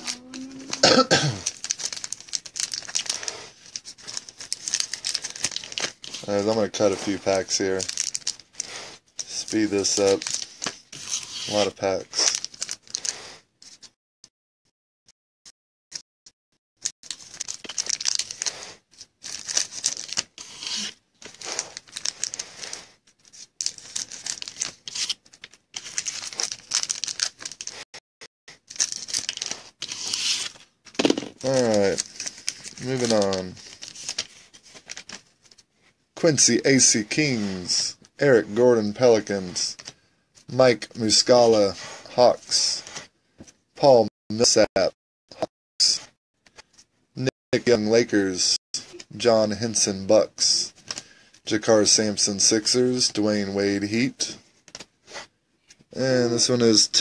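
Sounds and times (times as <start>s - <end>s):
foil wrappers crinkling: 1.4s - 13.1s, 17.0s - 27.8s, 28.6s - 35.6s.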